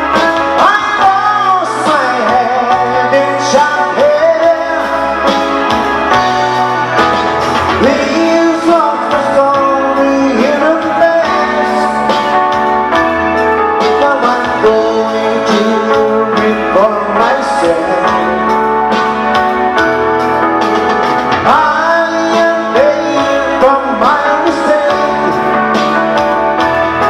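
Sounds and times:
man singing: 0:00.0 - 0:05.4, 0:07.7 - 0:12.6, 0:13.8 - 0:18.9, 0:21.4 - 0:26.2
band playing held chords: 0:00.0 - 0:27.0.

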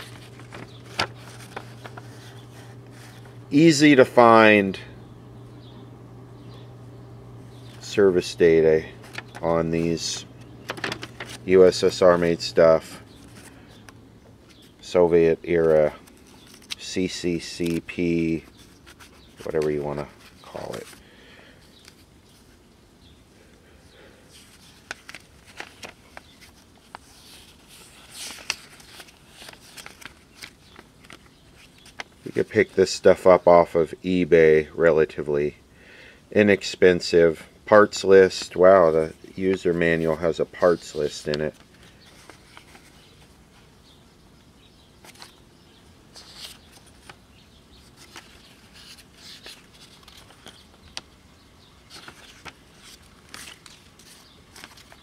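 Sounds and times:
paper clicks and crinkles: 0:00.0 - 0:04.2, 0:07.8 - 0:21.1, 0:24.3 - 0:32.8, 0:38.3 - 0:43.5, 0:45.0 - 0:45.5, 0:46.1 - 0:51.1, 0:51.8 - 0:55.0
page turning rustle: 0:00.0 - 0:04.4, 0:07.6 - 0:21.1, 0:24.4 - 0:33.0, 0:38.0 - 0:43.4, 0:45.0 - 0:45.4, 0:46.1 - 0:51.1, 0:51.8 - 0:55.0.

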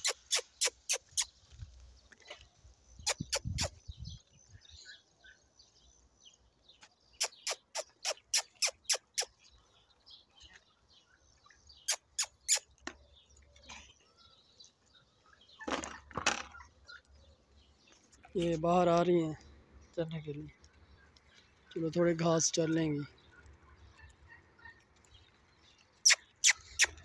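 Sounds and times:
sharp mouth clicks: 0:00.0 - 0:01.3, 0:03.1 - 0:03.8, 0:07.2 - 0:09.4, 0:11.9 - 0:12.6, 0:26.0 - 0:27.0.

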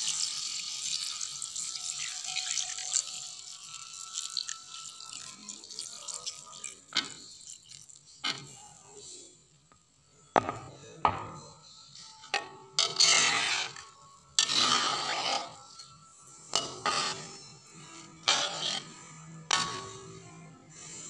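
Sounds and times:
metal spatula scraping metal pan: 0:12.8 - 0:20.2.

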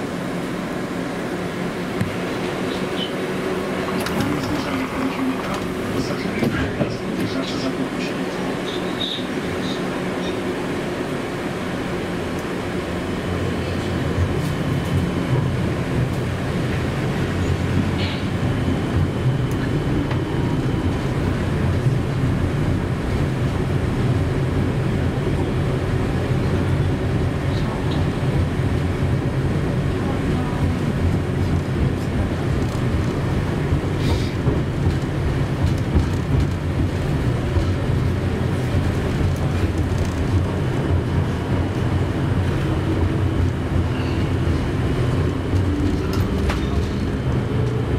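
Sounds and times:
tram running rumble and hum: 0:00.0 - 0:47.9.

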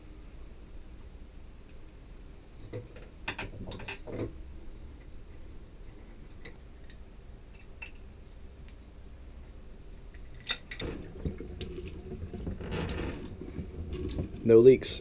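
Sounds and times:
small metal clicks and knocks: 0:02.7 - 0:04.3, 0:05.9 - 0:08.8.

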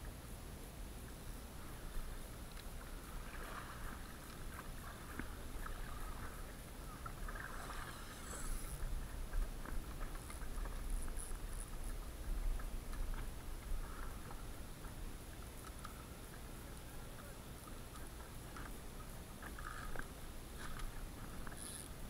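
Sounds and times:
water lapping against kayak: 0:01.4 - 0:22.0
small clicks: 0:15.6 - 0:16.0, 0:19.4 - 0:22.0.

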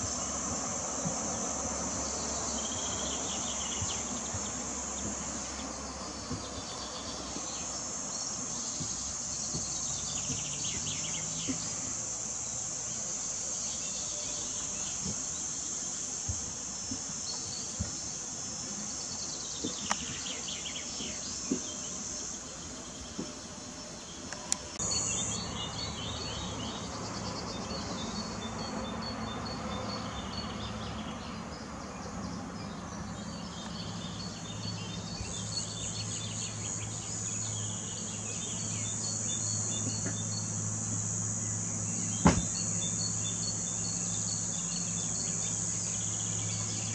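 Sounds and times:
insects buzzing: 0:00.0 - 0:46.9.

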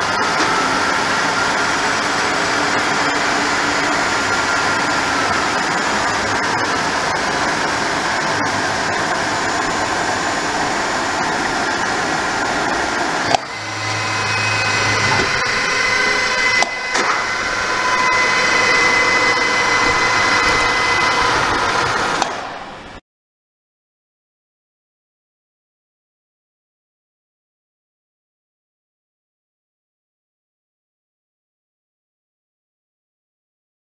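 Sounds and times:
high whining tones: 0:00.0 - 0:23.0
milling machine running: 0:00.0 - 0:23.0.

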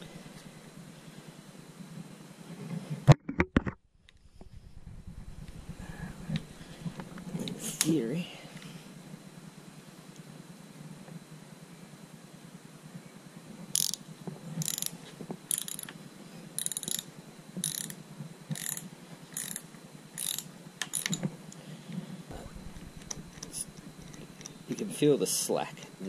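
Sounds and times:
ratchet wrench clicking: 0:13.7 - 0:14.0, 0:14.6 - 0:15.9, 0:16.6 - 0:19.6, 0:20.2 - 0:21.2.

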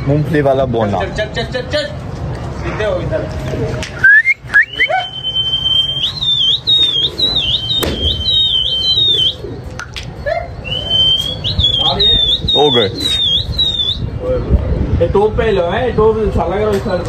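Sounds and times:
person whistling: 0:04.0 - 0:09.4, 0:10.7 - 0:14.0.

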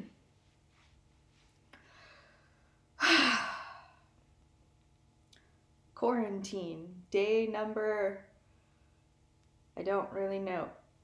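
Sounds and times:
woman sighing: 0:03.0 - 0:04.1.

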